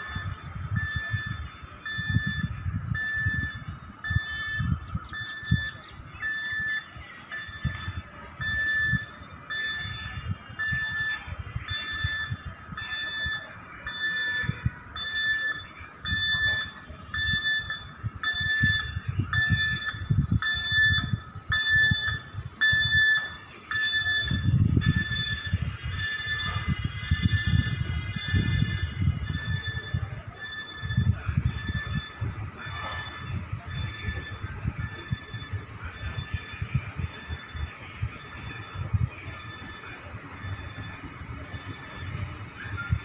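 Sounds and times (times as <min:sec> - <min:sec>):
electronic beep: 0:00.0 - 0:43.0
clunks from train wheels: 0:32.7 - 0:33.3.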